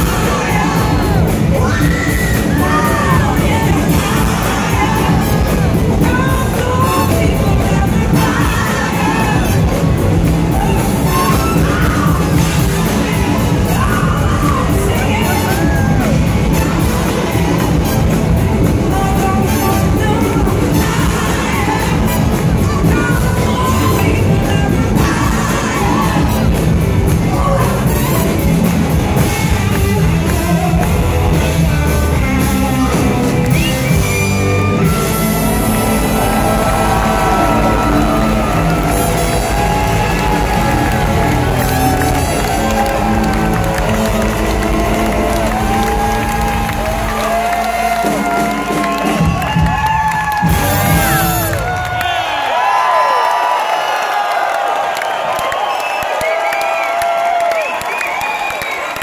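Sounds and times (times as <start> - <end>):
woman singing: 0.0 - 17.4, 18.6 - 28.5
drum kit: 0.0 - 52.3.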